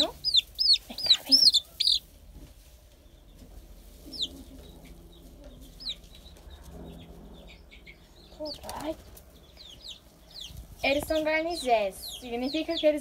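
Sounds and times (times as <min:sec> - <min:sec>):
chick peeping: 0:00.0 - 0:13.0.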